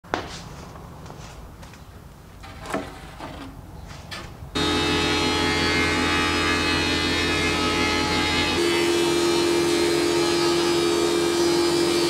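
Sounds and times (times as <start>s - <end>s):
wooden board rubbing on metal rack: 2.4s - 4.2s
wood planer humming: 4.6s - 12.0s.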